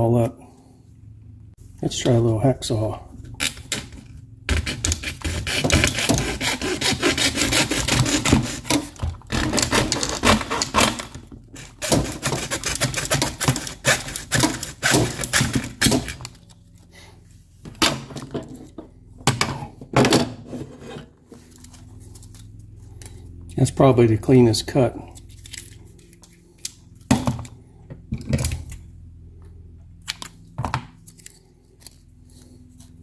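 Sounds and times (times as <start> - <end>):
hacksaw cutting plastic: 3.3 - 16.5.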